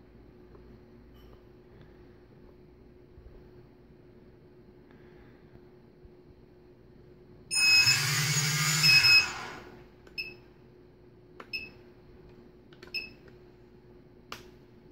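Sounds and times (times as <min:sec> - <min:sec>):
short high beeps: 0:07.5 - 0:09.5
drone motors spinning: 0:07.6 - 0:09.8.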